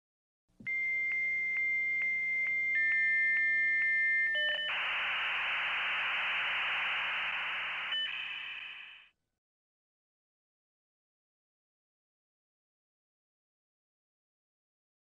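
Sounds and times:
dial-up modem tones: 0.7 - 9.1
modem hissing screech: 4.7 - 9.1.

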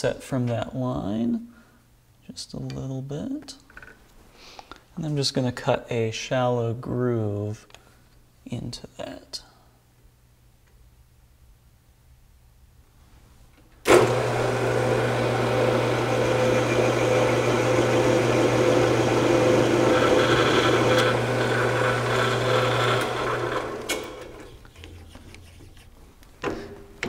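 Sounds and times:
lathe motor humming: 13.9 - 24.5
lathe spinning down: 13.9 - 24.5
tool cutting spinning shaft: 13.9 - 24.5.

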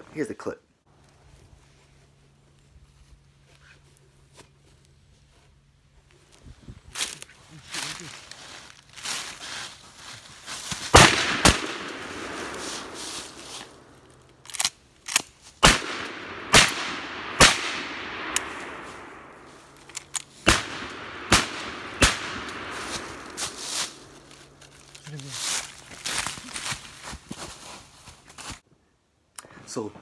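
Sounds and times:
shotgun blasts with echo: 10.9 - 13.8, 15.6 - 19.4, 20.4 - 23.6.

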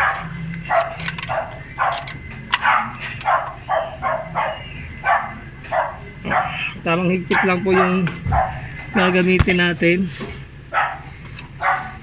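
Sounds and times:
dog barking: 0.0 - 8.7, 10.7 - 12.0.

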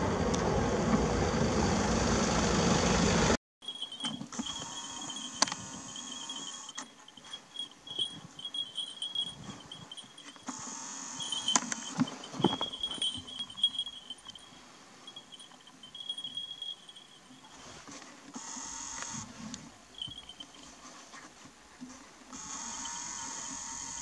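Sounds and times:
insects chirping trill: 3.6 - 17.6, 19.9 - 20.6.

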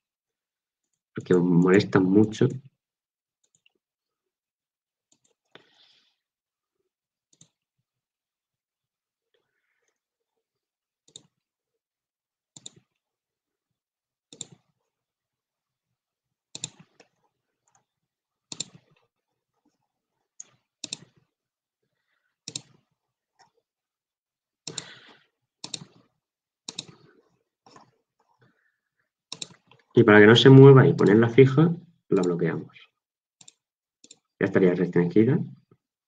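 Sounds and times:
mouse and keyboard clicks: 12.6 - 12.9, 14.3 - 14.7, 16.6 - 17.9, 18.5 - 18.8, 20.4 - 21.2, 22.5 - 22.8, 25.6 - 26.0, 26.7 - 27.1, 29.3 - 29.9, 33.4 - 34.3.

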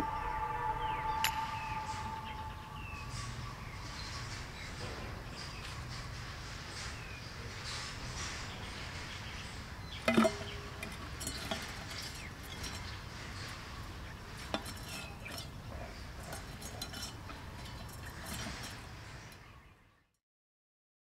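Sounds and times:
parrot moving inside tin: 5.4 - 19.5
metal tin clanging: 9.8 - 19.5.

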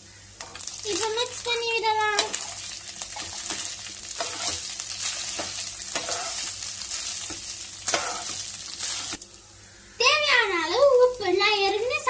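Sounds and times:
frying hiss: 0.0 - 12.0
spatula scraping pan: 2.2 - 9.2.

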